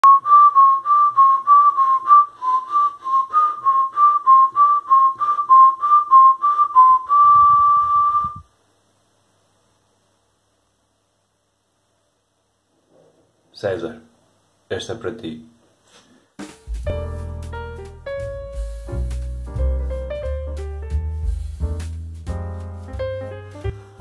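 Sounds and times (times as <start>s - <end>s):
person whistling a tune: 0.0s - 8.4s.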